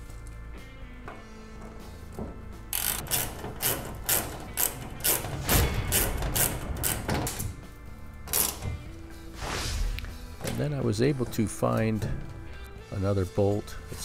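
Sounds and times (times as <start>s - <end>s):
ratchet clicking: 2.7s - 7.6s, 8.3s - 8.9s.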